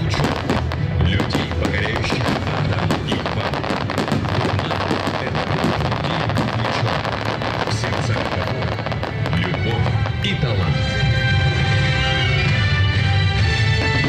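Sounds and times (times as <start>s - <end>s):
fireworks crackling pops: 0.0s - 10.3s.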